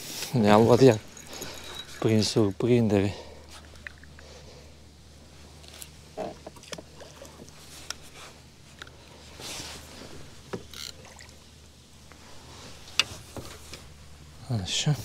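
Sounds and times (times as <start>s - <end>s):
water splashing and sloshing: 6.1s - 8.2s, 10.7s - 11.5s.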